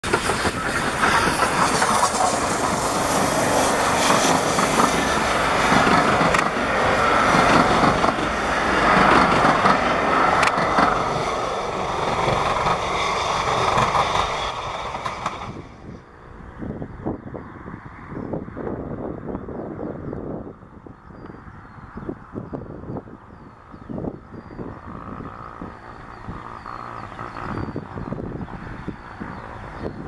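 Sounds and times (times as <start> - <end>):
sharp rail clicks: 0.0 - 15.6
train coaches rumbling over rails: 0.0 - 30.0.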